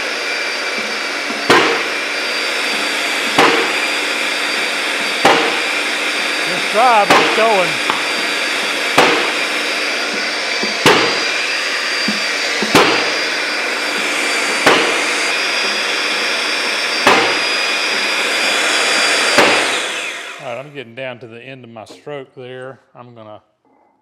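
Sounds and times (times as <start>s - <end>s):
hydraulic press pump running: 0.0s - 20.6s
sharp knocks: 1.4s - 1.9s, 5.2s - 5.6s, 7.1s - 8.2s, 9.0s - 9.4s, 10.6s - 11.2s, 12.0s - 13.1s, 14.6s - 15.0s, 17.0s - 17.4s.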